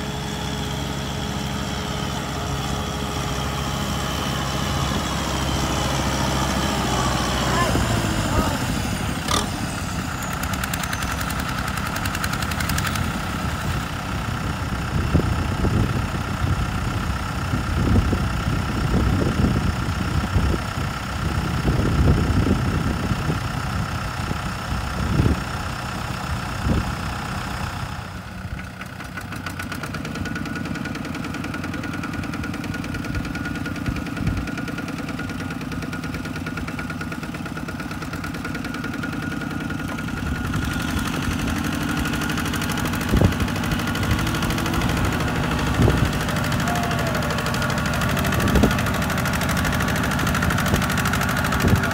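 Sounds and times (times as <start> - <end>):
tractor diesel engine under load: 0.0 - 51.9.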